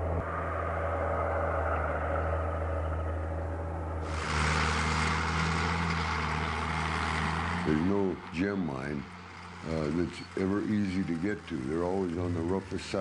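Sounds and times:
tractor diesel engine under load: 4.0 - 13.0.

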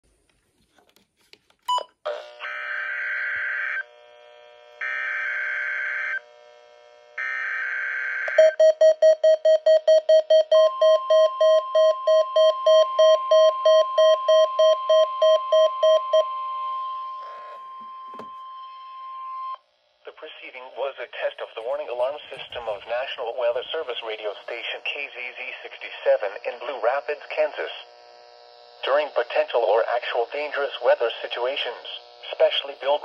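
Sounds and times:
steady warning alarm tone: 7.2 - 19.6
alert radio beeping: 8.3 - 19.6, 21.2 - 25.1
buzzy digital data bursts: 19.6 - 33.0.

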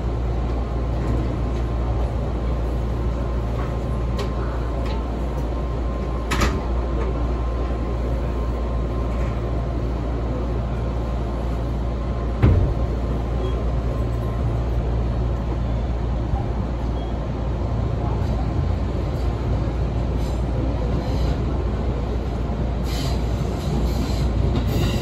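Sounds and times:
train wheels rumbling: 0.0 - 25.0.

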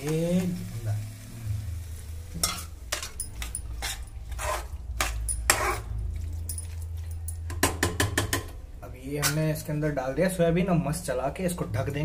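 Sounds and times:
metal spatula scraping a pan: 2.3 - 6.8.

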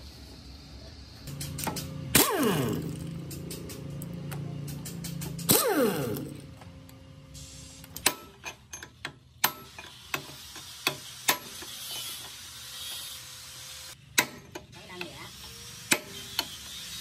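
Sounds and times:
impact wrench spinning down: 1.3 - 6.6
metal clanks and taps: 3.2 - 5.5, 8.0 - 11.7, 14.1 - 15.1.

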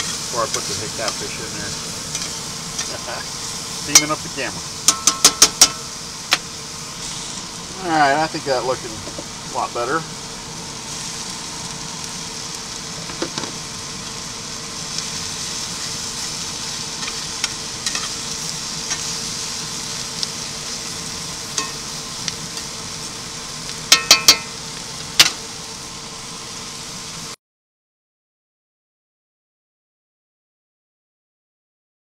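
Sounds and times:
food sizzling in skillet: 0.0 - 27.4.

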